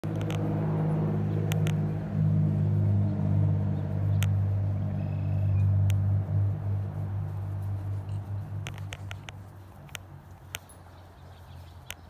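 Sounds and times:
sharp clicks: 0.0 - 0.5, 1.3 - 1.9, 4.0 - 4.5, 5.3 - 6.1, 8.1 - 10.8, 11.7 - 12.0
low motor drone: 0.0 - 9.9.

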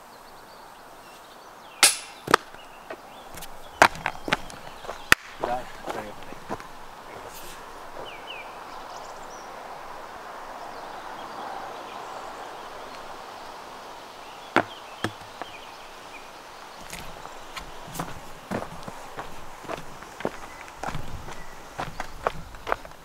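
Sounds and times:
sharp knocks: 1.8 - 2.5
wind noise: 2.2 - 23.0.

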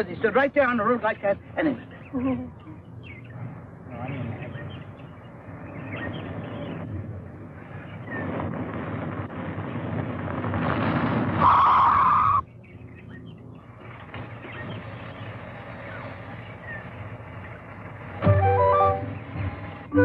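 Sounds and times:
loud tyre skid: 10.6 - 12.4
car speeding on dirt road: 13.2 - 18.2.

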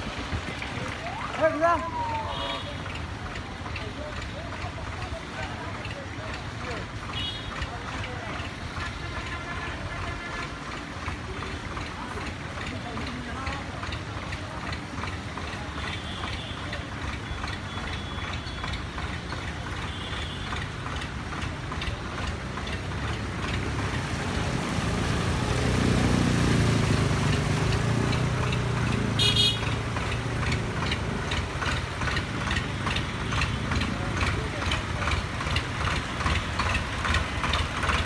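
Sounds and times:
vehicle engine running: 0.0 - 38.0
vehicles driving through water: 0.0 - 38.0
high horn: 29.2 - 29.7.

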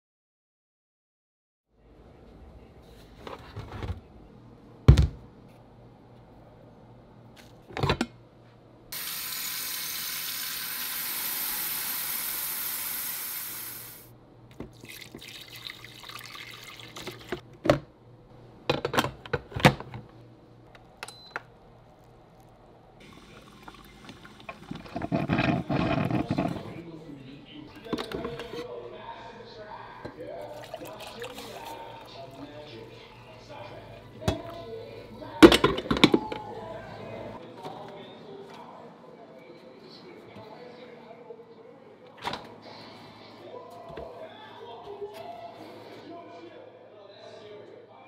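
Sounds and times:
tap water filling glass carafe: 14.5 - 17.4, 23.0 - 26.2.

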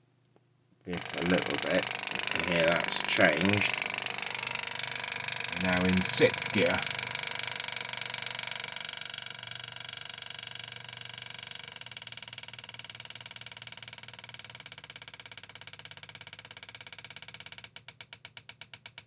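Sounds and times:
solenoid buzzing and clicking: 0.9 - 9.8.

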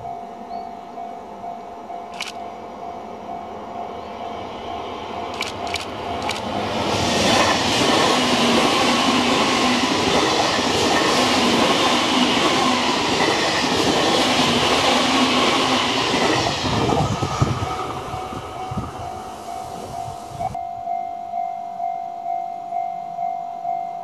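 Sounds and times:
train passing at speed: 0.0 - 20.6.

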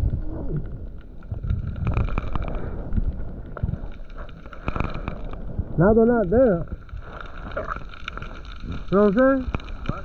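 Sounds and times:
underwater clicks and knocks: 1.3 - 5.4.

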